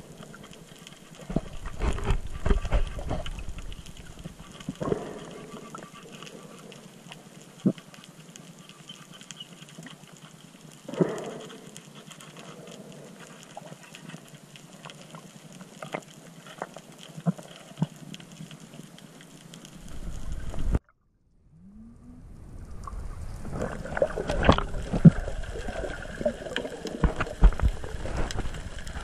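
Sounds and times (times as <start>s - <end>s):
steady underwater hiss: 0.0s - 20.8s, 22.4s - 29.0s
low rumble: 19.8s - 26.2s.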